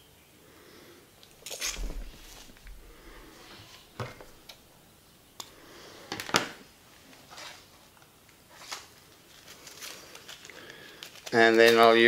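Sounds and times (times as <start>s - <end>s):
fishing tackle clicking and rustling: 8.6s - 12.0s.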